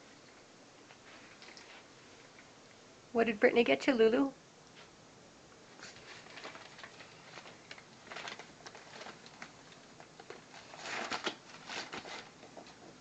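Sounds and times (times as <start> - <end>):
wrapping paper crinkling: 5.9 - 12.4.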